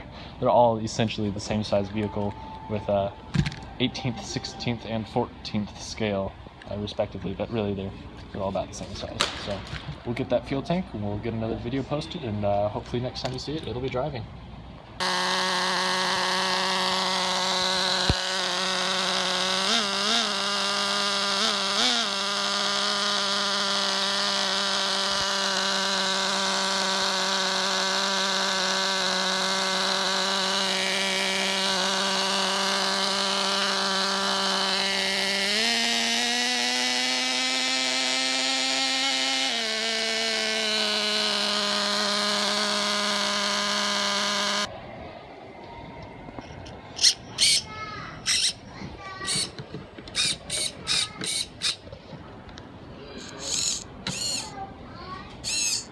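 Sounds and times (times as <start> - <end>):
small nitro engine idling: 0.0 - 7.4, 15.0 - 44.7, 49.3 - 51.8, 53.2 - 54.6, 55.4 - 55.9
engine throttle blips: 0.0 - 47.1.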